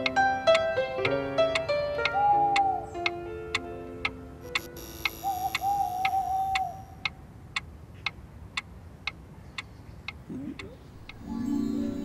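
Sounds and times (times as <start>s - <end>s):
wavering high tone: 4.4s - 7.0s
clock ticking: 4.4s - 11.3s.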